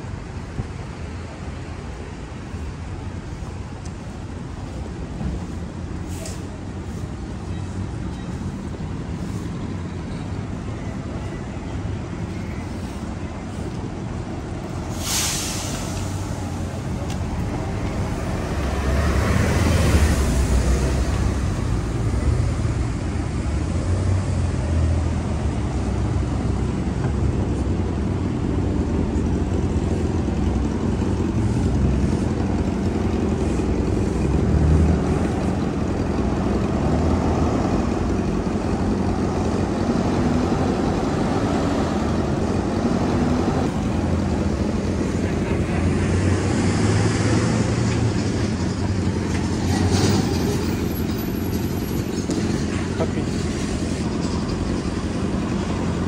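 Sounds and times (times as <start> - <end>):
traffic rumble: 0.0 - 56.0
short sharp hiss: 6.1 - 6.6, 14.9 - 16.6
vehicle passing: 16.0 - 26.7, 29.2 - 56.0.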